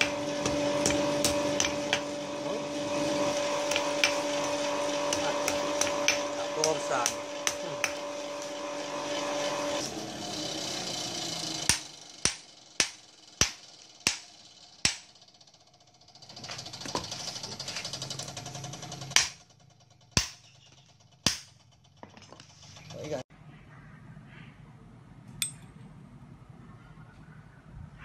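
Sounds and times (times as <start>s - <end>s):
hammer striking iron on anvil: 0.0s - 2.1s, 3.7s - 4.2s, 5.1s - 8.1s, 11.7s - 15.2s, 19.2s - 19.4s, 20.2s - 20.4s, 21.2s - 21.5s.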